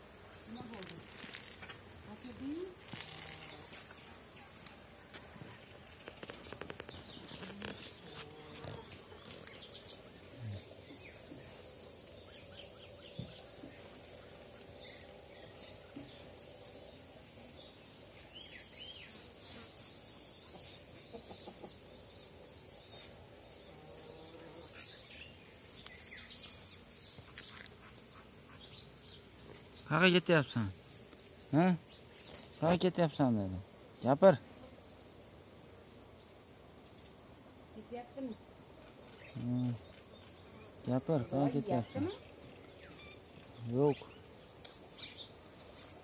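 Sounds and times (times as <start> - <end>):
faint birdsong chirps: 5.4 - 35.3, 35.9 - 46.0
rustling and clicking: 5.9 - 9.6.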